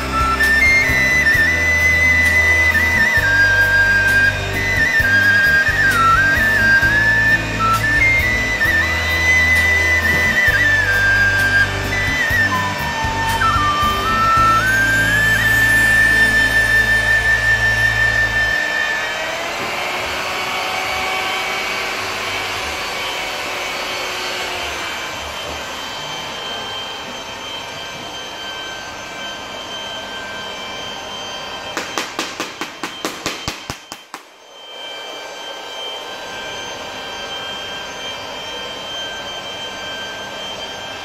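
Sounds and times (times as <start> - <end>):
electric polishers whining: 0.0 - 41.0.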